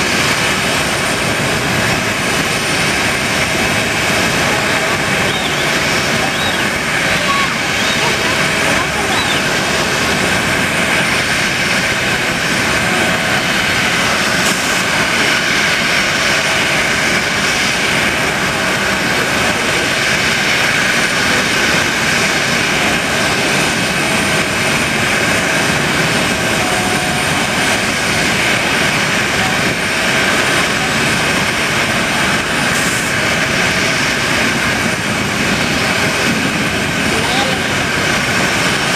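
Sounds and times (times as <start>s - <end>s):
jet engines whining: 0.0s - 38.9s.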